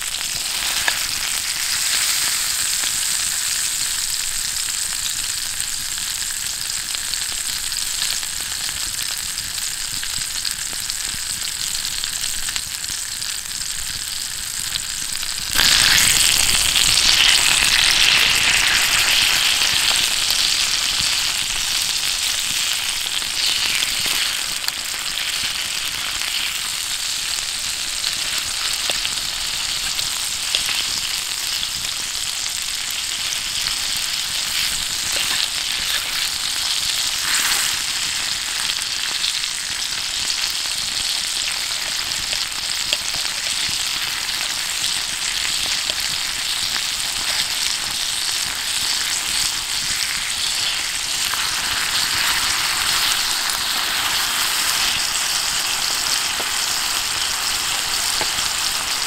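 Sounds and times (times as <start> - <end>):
steak sizzling on a griddle: 0.0 - 59.0.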